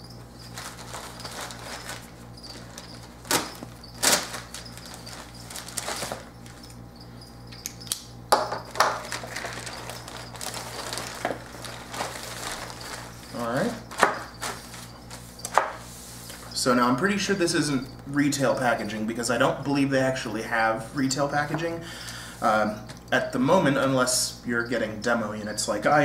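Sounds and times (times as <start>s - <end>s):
plastic bag crinkling: 0.0s - 6.7s, 8.7s - 15.3s.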